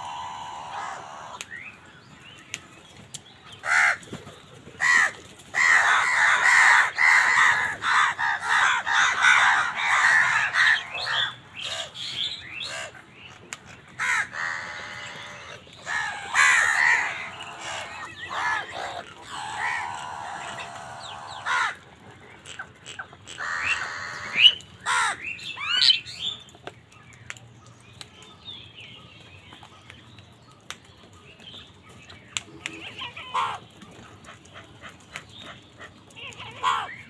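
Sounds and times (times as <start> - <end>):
crows cawing: 0.0 - 1.5, 3.6 - 4.0, 4.8 - 12.0, 12.6 - 13.0, 14.0 - 21.9, 22.8 - 25.8, 33.1 - 33.6, 36.3 - 37.0.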